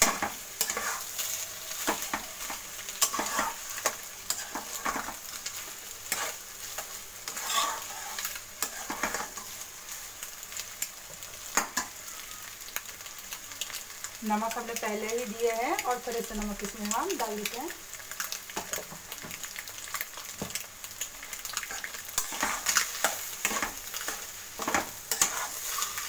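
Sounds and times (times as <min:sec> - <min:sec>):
frying sizzle: 0:00.0 - 0:26.0
metal spatula scraping pan: 0:00.1 - 0:05.2, 0:06.0 - 0:09.6, 0:21.8 - 0:26.0.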